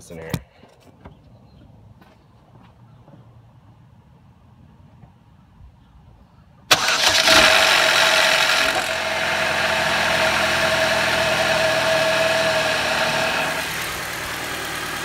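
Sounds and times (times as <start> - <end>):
engine cranking and idling: 6.7 - 15.0.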